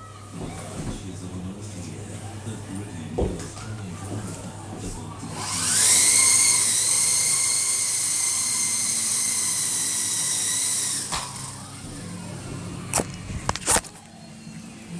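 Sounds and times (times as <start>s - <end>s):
toy helicopter rotors whining: 5.3s - 12.3s.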